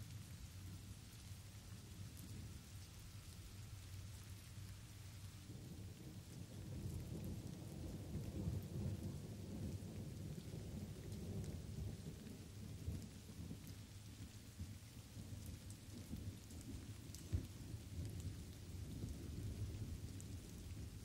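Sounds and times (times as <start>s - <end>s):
light rain: 0.0s - 21.0s
low rolling thunder: 5.4s - 21.0s.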